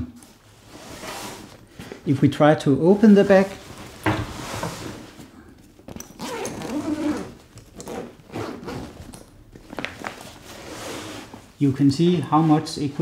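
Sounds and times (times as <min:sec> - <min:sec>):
backpack zipper pulled open: 0:06.0 - 0:09.0.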